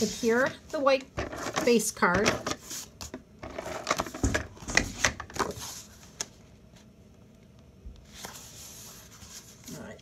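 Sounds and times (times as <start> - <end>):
cardstock rustling on a tabletop: 0.0 - 6.9, 8.0 - 9.9.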